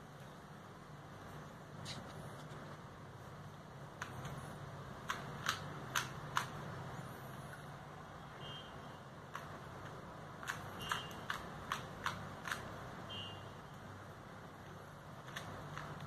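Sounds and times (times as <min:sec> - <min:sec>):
puzzle cube clicking: 0:04.0 - 0:06.8, 0:09.2 - 0:12.8, 0:15.2 - 0:16.0.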